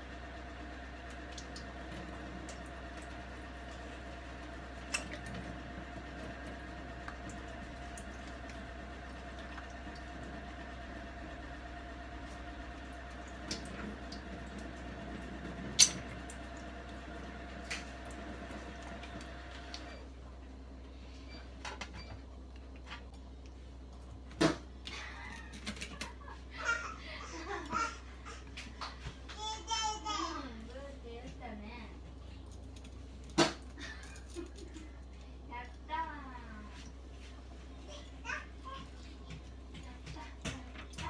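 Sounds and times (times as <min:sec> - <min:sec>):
tap water running into sink: 0:00.6 - 0:11.1, 0:12.6 - 0:19.8.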